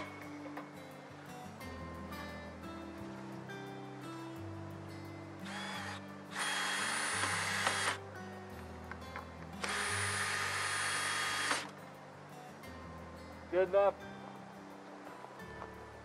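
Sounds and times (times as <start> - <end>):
background music: 0.0 - 16.0
cordless drill driving screws: 5.4 - 8.0, 9.6 - 11.7.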